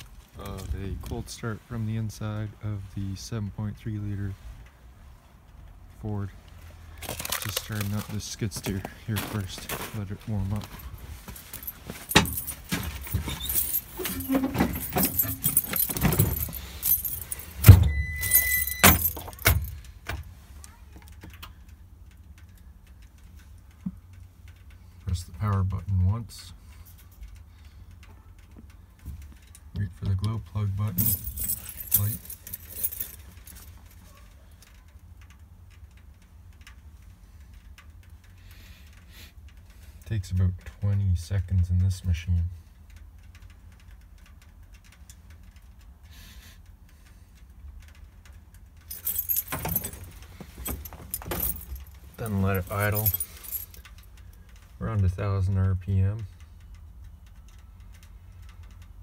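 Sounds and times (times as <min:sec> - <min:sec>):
rattling and clicks of metal step: 0:11.6 - 0:20.3, 0:48.9 - 0:53.7.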